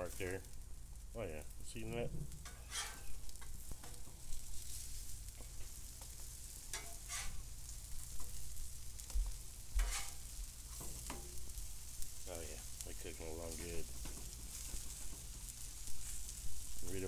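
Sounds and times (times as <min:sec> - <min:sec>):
patties sizzling on griddle: 0:00.0 - 0:17.0
metal spatula scraping steel: 0:02.4 - 0:04.1, 0:06.6 - 0:07.5, 0:09.8 - 0:11.4.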